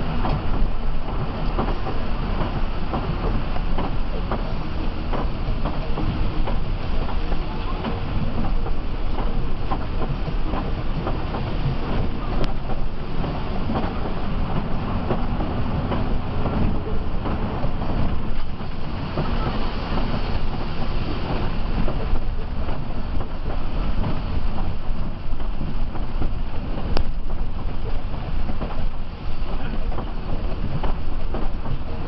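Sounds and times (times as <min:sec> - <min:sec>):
engine and wet tyre rumble: 0:00.0 - 0:32.0.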